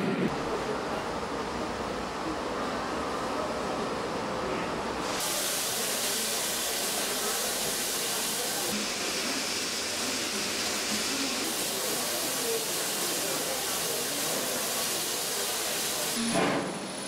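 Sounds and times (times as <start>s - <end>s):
train noise: 0.0s - 17.0s
steam hissing from locomotive: 5.0s - 17.0s.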